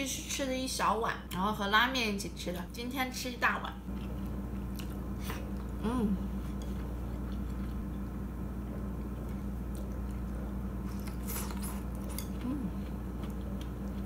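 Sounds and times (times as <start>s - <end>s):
steady low hum: 0.0s - 14.0s
person chewing: 3.9s - 5.8s, 6.4s - 14.0s
person humming mm: 5.8s - 6.3s, 12.4s - 12.8s.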